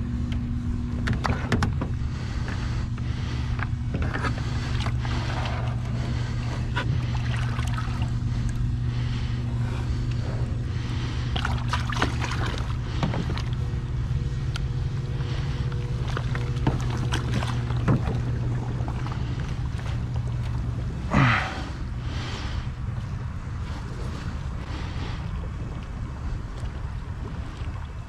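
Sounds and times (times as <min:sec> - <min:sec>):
steady low hum: 0:00.0 - 0:28.0
water sloshing: 0:01.0 - 0:28.0.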